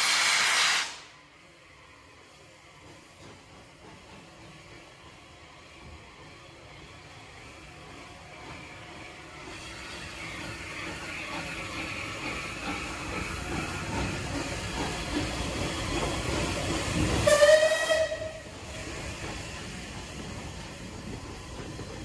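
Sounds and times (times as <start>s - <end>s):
hissing steam: 0.0s - 1.1s
steam locomotive exhaust beats: 0.0s - 22.0s
locomotive whistle blast: 17.2s - 18.4s.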